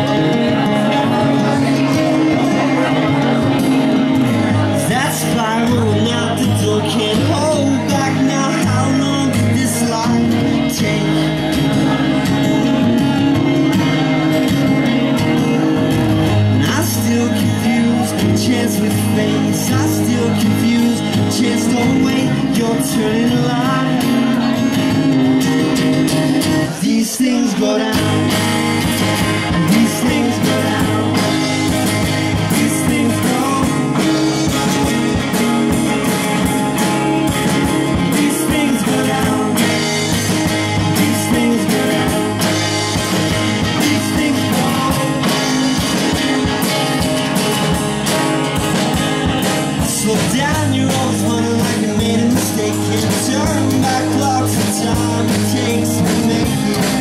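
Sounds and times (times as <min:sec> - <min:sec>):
electric bass: 0:00.0 - 0:26.8, 0:27.9 - 0:57.0
acoustic guitar: 0:00.0 - 0:57.0
steady drum beat: 0:28.0 - 0:57.0.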